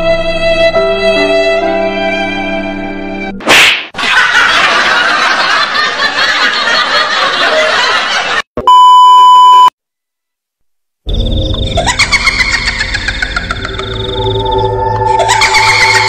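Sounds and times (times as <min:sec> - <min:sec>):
snickering laughter: 0:04.0 - 0:08.4, 0:11.8 - 0:14.0, 0:15.2 - 0:16.0
steady electronic beep: 0:08.6 - 0:09.7, 0:14.0 - 0:15.1.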